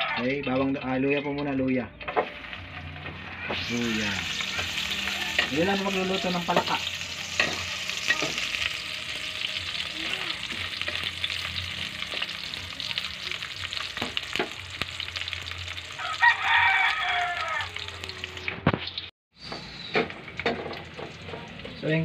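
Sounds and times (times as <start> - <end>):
spatula scraping a pan: 2.0 - 9.5
garlic sizzling in hot oil: 2.2 - 19.1, 19.8 - 22.0
rooster crowing: 4.0 - 6.8, 15.9 - 18.2.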